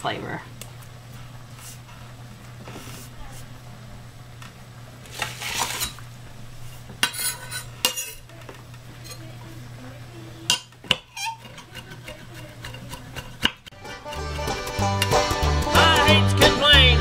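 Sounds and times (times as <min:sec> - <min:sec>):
knife scraping board: 0:05.1 - 0:06.0, 0:06.6 - 0:08.2, 0:10.9 - 0:14.6
knife chopping on cutting board: 0:10.5 - 0:15.1.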